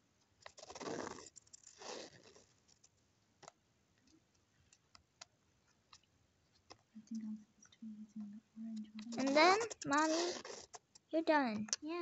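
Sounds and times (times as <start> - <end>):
pen scratching on paper: 9.0 - 10.9.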